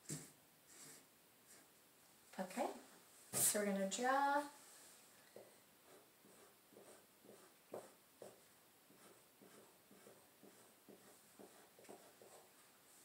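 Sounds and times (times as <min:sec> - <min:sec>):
pencils scratching on paper: 0:05.4 - 0:13.0.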